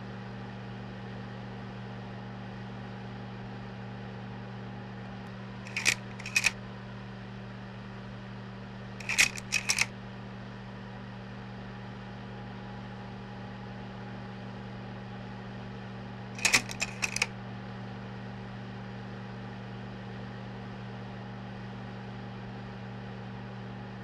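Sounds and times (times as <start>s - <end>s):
slide projector mechanical clicks: 5.7s - 6.6s, 9.0s - 9.9s, 16.4s - 17.3s.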